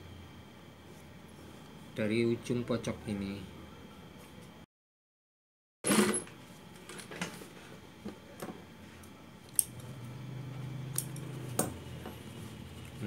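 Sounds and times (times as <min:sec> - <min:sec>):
sewing machine motor hum: 0:09.7 - 0:13.0.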